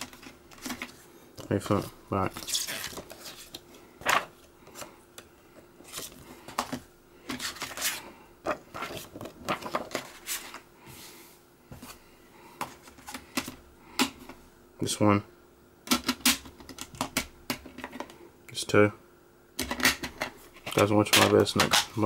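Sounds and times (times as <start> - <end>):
paper and plastic rustling and clicking: 0.0 - 4.9, 5.8 - 10.6.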